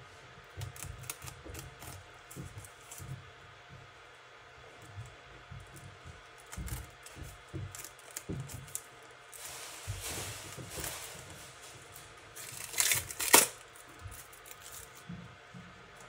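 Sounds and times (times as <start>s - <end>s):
packaging rustling: 7.5s - 15.1s.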